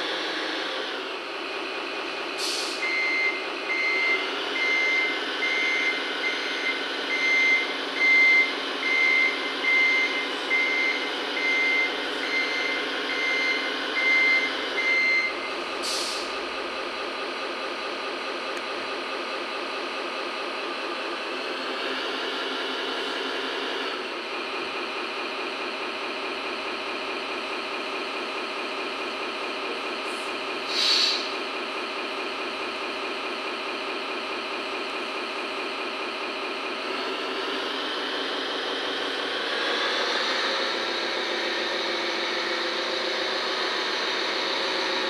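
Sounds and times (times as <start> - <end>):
diesel truck engine running: 0.0 - 45.0
air brake hiss: 2.4 - 2.8, 15.8 - 16.4, 30.1 - 31.4
reversing beeper: 2.8 - 15.5.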